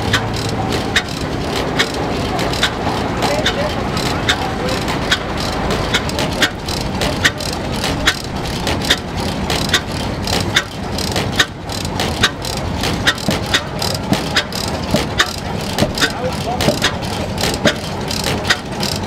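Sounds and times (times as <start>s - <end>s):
sharp metallic clicks: 0.0s - 19.0s
stationary engine clattering: 0.0s - 19.0s.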